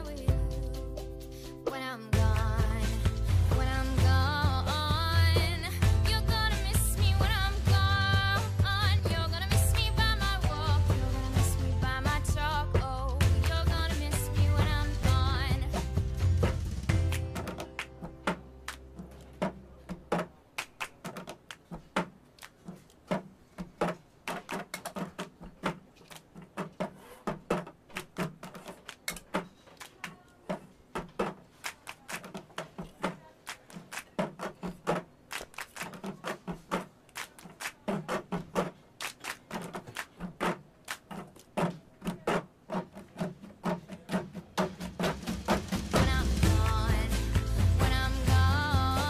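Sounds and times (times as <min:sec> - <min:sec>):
hand claps: 0:02.2 - 0:02.9, 0:12.8 - 0:15.4, 0:16.4 - 0:49.0.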